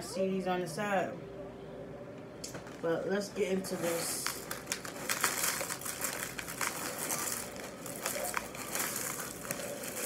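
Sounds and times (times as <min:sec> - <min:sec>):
plastic bag crinkling: 0:03.6 - 0:10.0
cereal flakes pouring into container: 0:03.7 - 0:10.0.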